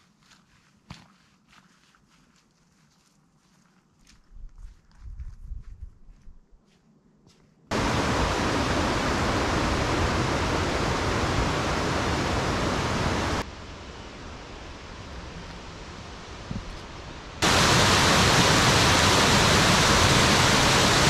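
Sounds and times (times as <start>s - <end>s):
mountain stream rushing: 7.7s - 21.0s.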